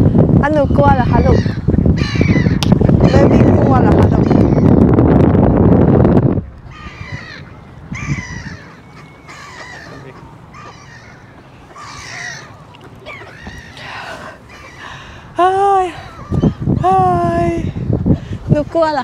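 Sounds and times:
birds making harsh calls: 0:00.7 - 0:04.9, 0:06.6 - 0:16.9.

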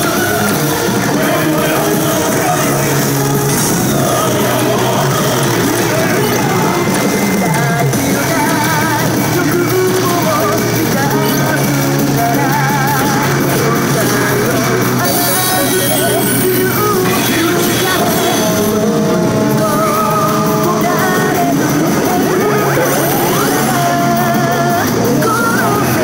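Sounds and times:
pachinko machine electronic music: 0:00.0 - 0:26.0
warbling sound effects: 0:21.5 - 0:24.6.

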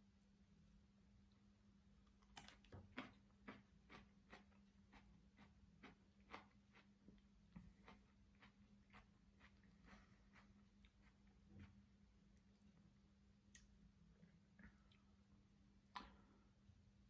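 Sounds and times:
low steady hum: 0:00.0 - 0:17.0
wet chewing clicks: 0:02.2 - 0:06.9, 0:07.5 - 0:11.3.

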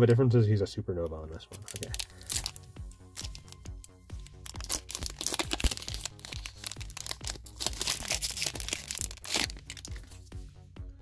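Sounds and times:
background music with steady beat: 0:00.0 - 0:11.0
foil wrapper crinkling and tearing: 0:01.5 - 0:10.2.

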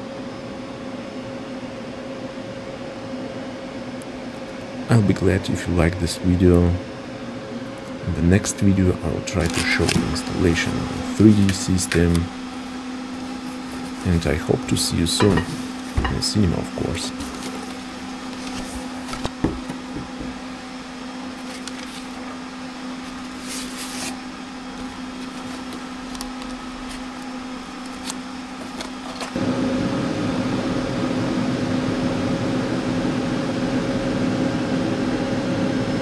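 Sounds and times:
projector cooling fans whirring: 0:00.0 - 0:36.0
steady electrical hum: 0:00.0 - 0:36.0
cardboard rustling and clicks: 0:21.4 - 0:22.3, 0:23.0 - 0:29.4.

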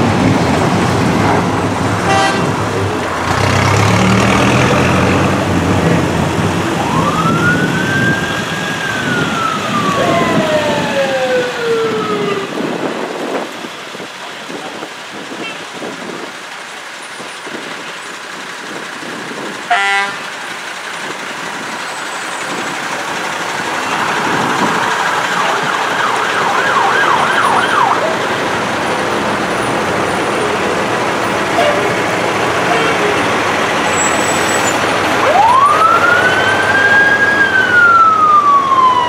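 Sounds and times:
diesel engines running: 0:00.0 - 0:39.0
siren falling in pitch: 0:06.6 - 0:12.6, 0:24.9 - 0:28.2, 0:35.1 - 0:39.0
electronic siren yelping: 0:06.8 - 0:12.6, 0:24.8 - 0:28.2, 0:34.1 - 0:39.0.

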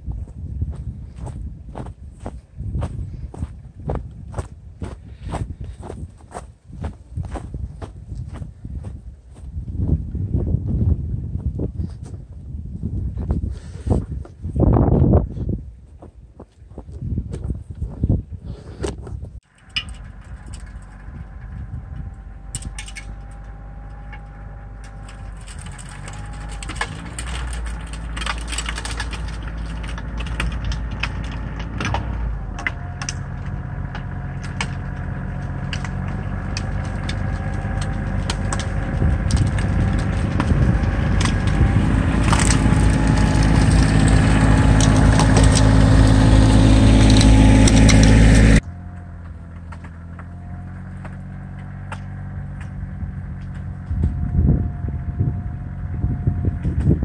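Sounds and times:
tractor diesel engine: 0:19.4 - 0:57.0
snowblower throwing snow: 0:22.5 - 0:48.6
sharp crackles: 0:24.8 - 0:48.6.

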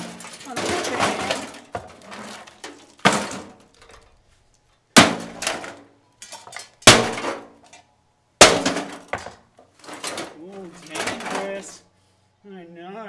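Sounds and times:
heavy blows smashing metal: 0:00.0 - 0:03.7, 0:04.9 - 0:05.8, 0:06.8 - 0:07.6, 0:08.4 - 0:11.8
metal rattling and debris scattering: 0:00.0 - 0:04.2, 0:04.9 - 0:11.8.

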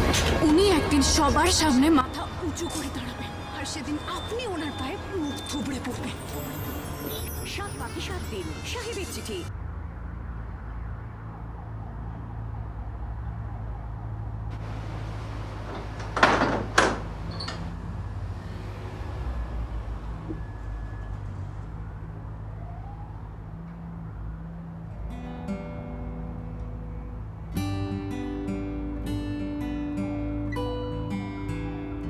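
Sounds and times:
loud knocks: 0:15.8 - 0:17.2.

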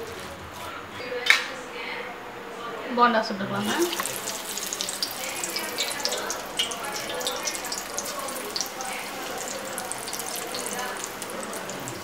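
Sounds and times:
batter deep-frying in oil: 0:03.6 - 0:12.0.

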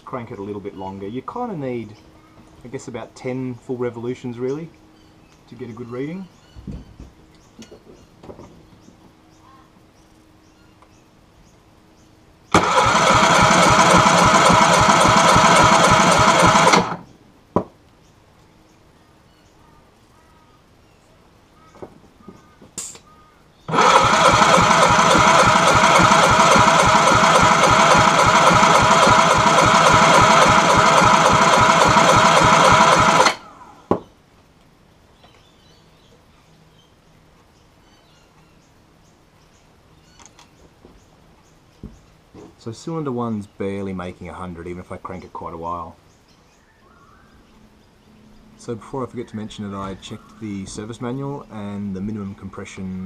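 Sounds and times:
outboard motor cranking: 0:12.5 - 0:17.0, 0:23.7 - 0:33.6.

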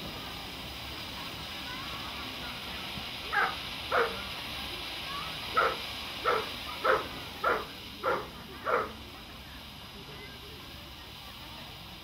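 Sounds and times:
firework fountain hissing: 0:00.0 - 0:12.0
dog barking: 0:03.3 - 0:04.2, 0:05.6 - 0:08.9.

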